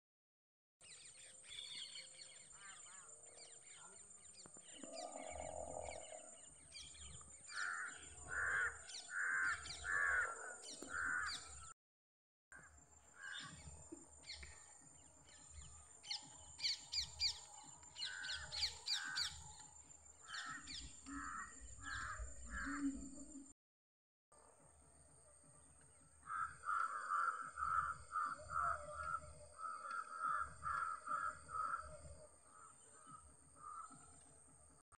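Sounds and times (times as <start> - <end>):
harsh bird calls: 4.8 - 11.7, 16.1 - 19.6.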